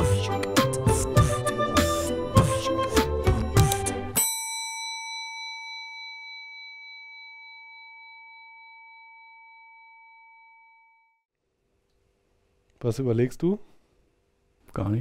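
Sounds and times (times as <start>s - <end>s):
metallic bell chime: 4.2s - 11.2s.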